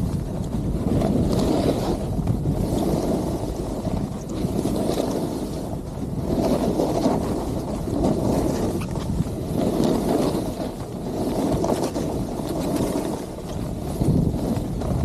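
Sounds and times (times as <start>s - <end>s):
wind rushing over microphone: 0.0s - 15.0s
skis hissing on snow: 1.3s - 15.0s.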